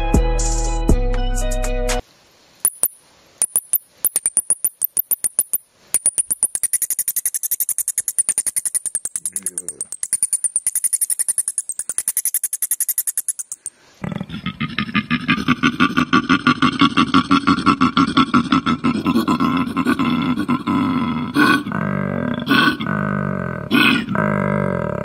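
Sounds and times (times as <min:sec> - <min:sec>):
bat calls clicking chirps: 0:02.6 - 0:13.8.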